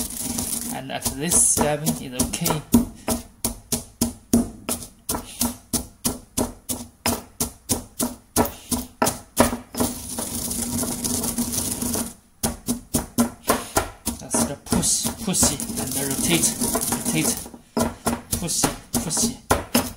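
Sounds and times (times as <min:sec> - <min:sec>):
pestle grinding in mortar: 0:00.0 - 0:19.9
pestle pounding in stone mortar: 0:00.0 - 0:19.9.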